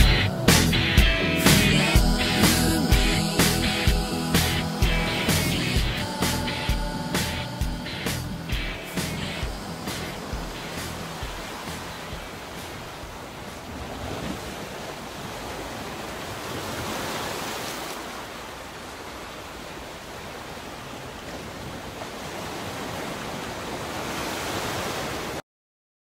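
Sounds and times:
steady rushing hiss: 0.0 - 13.8.

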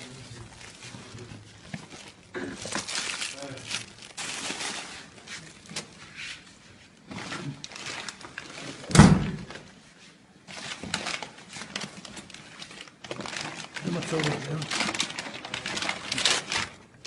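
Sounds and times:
plastic bags and cloth rustling: 0.0 - 17.0
loud thump: 8.9 - 9.5.

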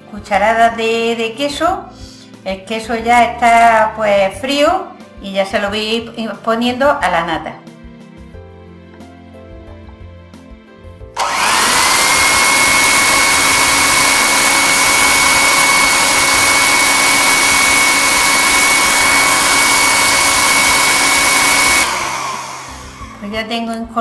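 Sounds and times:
electric hand mixer whining: 11.2 - 23.6.

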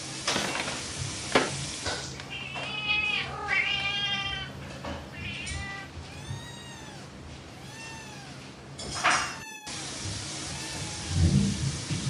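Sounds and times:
cat meowing: 2.3 - 11.4.

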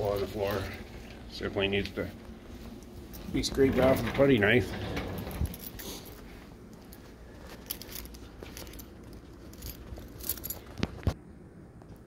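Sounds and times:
metallic jingling: 3.1 - 6.2, 7.4 - 10.8.

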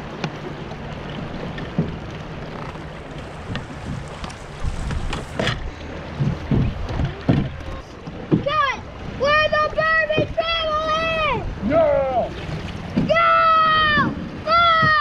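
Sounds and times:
river rushing: 0.0 - 15.0
wind buffeting microphone: 1.3 - 11.7
knocks and low thumps: 6.2 - 8.6.

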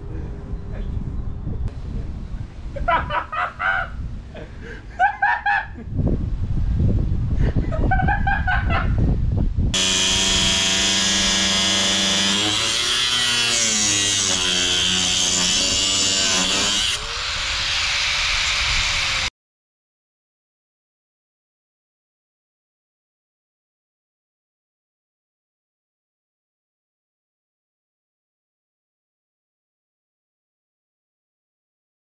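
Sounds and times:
angle grinder cutting metal: 9.8 - 19.3.

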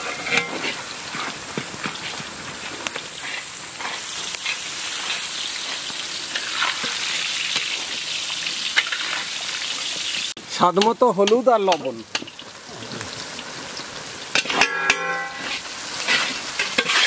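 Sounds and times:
spatula scraping a metal pan: 0.0 - 2.2, 8.8 - 9.3, 14.4 - 17.0
onions sizzling in hot oil: 0.0 - 17.0.

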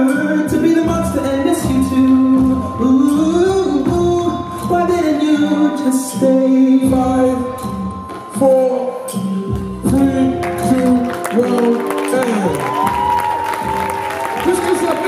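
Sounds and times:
person singing: 0.0 - 7.6
music with low beat: 0.0 - 15.0.

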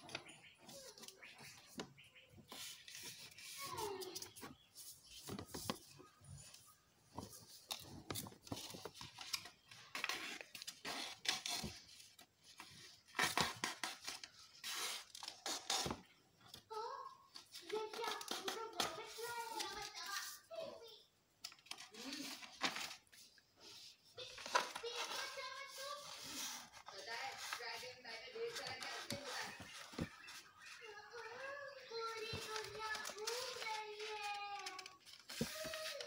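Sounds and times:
paper rustling and crinkling: 0.0 - 16.1, 17.4 - 20.5, 21.5 - 36.0.

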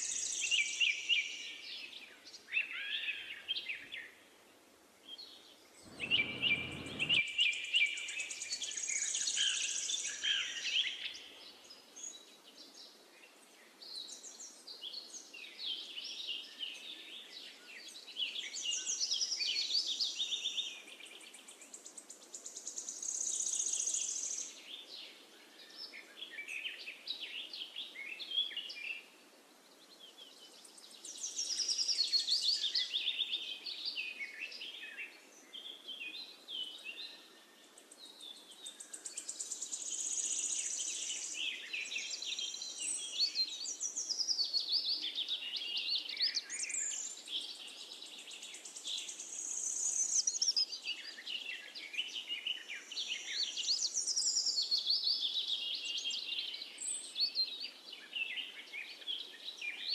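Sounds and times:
faint outdoor hiss: 0.0 - 59.9
songbirds chirping and trilling: 5.1 - 59.9.

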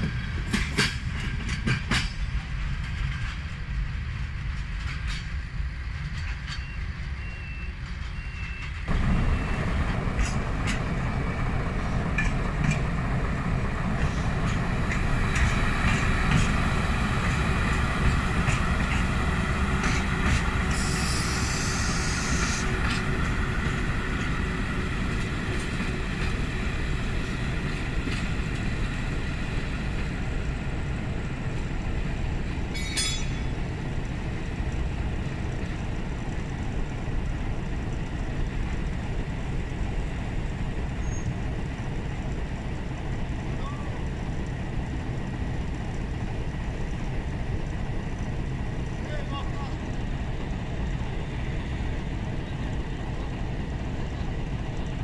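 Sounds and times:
wheels clicking over rail joints: 0.0 - 9.1, 9.7 - 55.0
diesel locomotive rumble: 0.0 - 55.0
high wheel squeal: 6.5 - 9.8, 20.7 - 22.7
hiss: 19.8 - 23.1.

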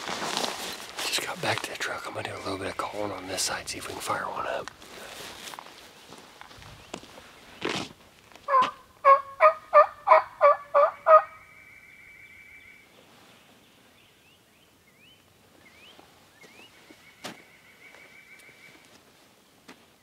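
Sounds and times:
turkey call yelps: 8.5 - 12.8.

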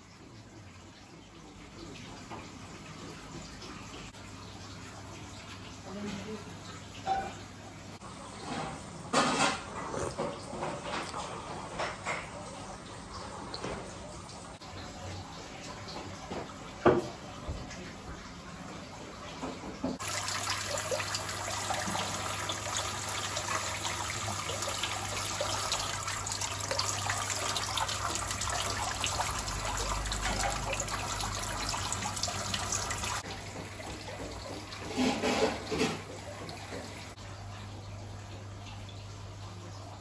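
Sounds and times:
water splashing into tank: 9.2 - 37.7.

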